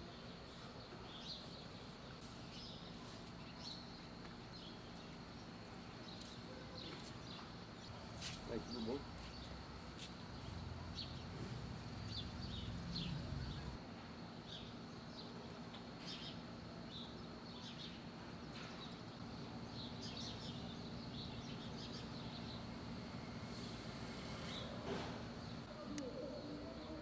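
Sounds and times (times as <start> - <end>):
birds chirping: 10.3 - 13.8.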